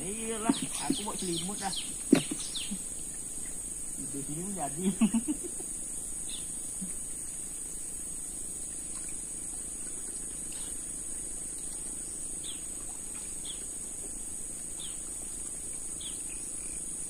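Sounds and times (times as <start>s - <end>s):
high-pitched insect drone: 0.0s - 17.0s.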